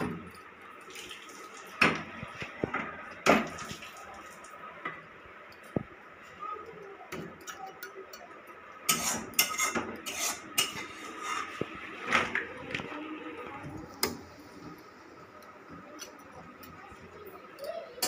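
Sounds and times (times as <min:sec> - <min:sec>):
metal spatula scraping pan: 0:08.9 - 0:11.7.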